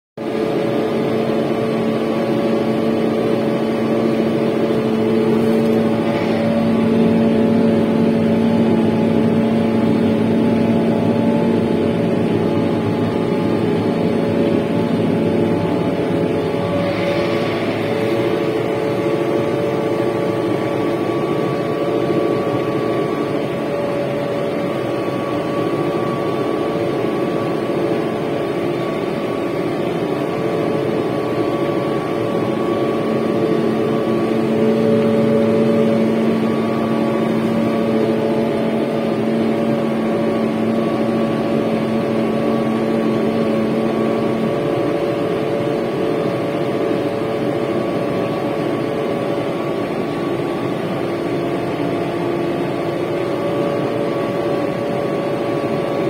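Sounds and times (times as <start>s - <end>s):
tractor diesel engine drone: 0.2s - 56.0s
low hum: 2.4s - 45.8s.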